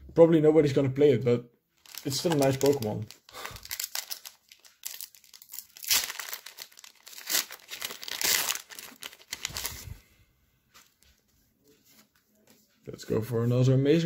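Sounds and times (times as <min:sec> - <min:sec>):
foil wrapper tearing and crinkling: 0:01.8 - 0:10.0.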